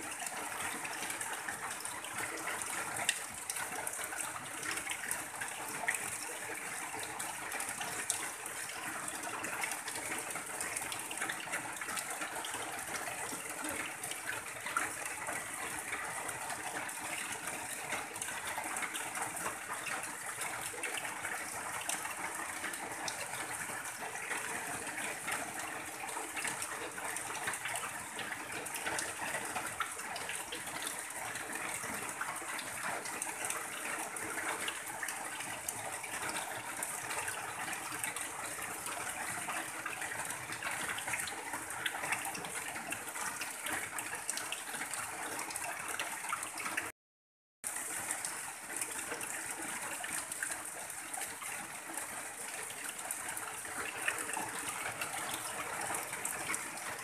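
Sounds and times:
water pouring off roof edge: 0.0s - 46.9s, 47.7s - 57.0s
rain on a tin roof: 0.0s - 47.0s, 47.6s - 57.0s.

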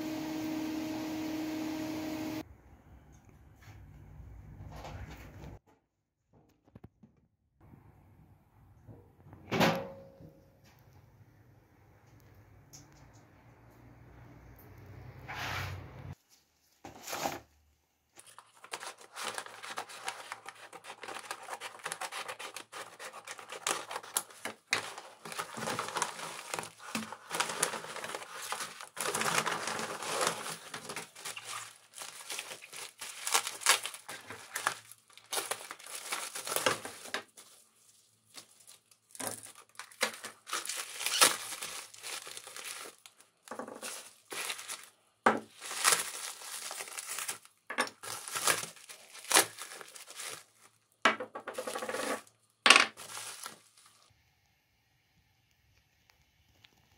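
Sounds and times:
bubble wrap and paper crinkling: 18.2s - 54.1s.

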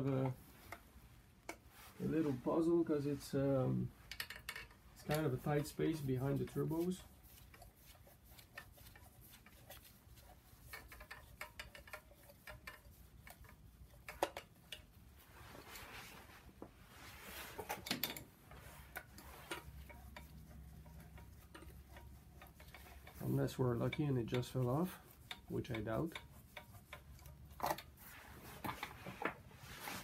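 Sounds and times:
metal tool clicks and knocks: 4.1s - 5.3s, 10.7s - 14.9s, 17.7s - 18.3s.

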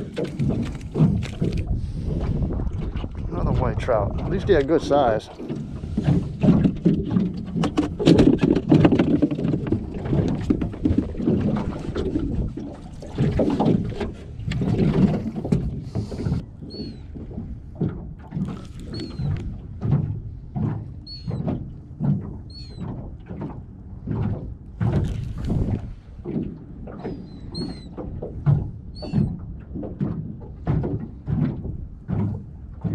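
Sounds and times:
knocks in boat: 0.0s - 3.0s, 5.4s - 18.4s, 19.0s - 32.9s
water sloshing against metal hull: 0.0s - 32.9s
bird call: 16.7s - 17.0s.

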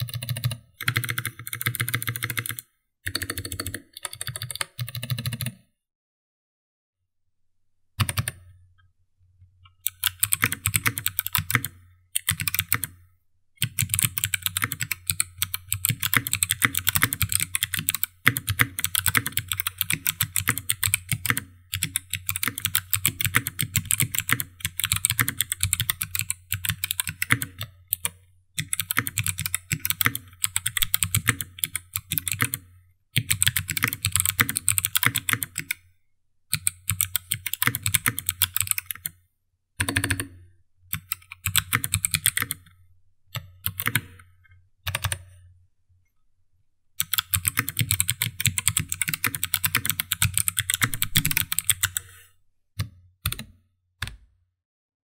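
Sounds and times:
fast clicky keyboard typing: 0.0s - 5.6s, 8.0s - 8.4s, 9.9s - 13.0s, 13.6s - 32.6s, 33.2s - 35.8s, 36.5s - 39.1s, 39.8s - 40.3s, 40.9s - 42.6s, 43.6s - 44.1s, 44.9s - 45.2s, 47.0s - 52.1s, 53.3s - 53.5s.

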